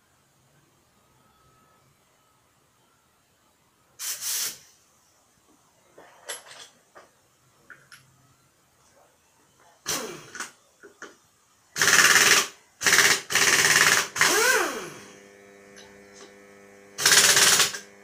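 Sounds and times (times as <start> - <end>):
impact wrench rattling bursts: 11.8 - 15.0, 17.0 - 17.8.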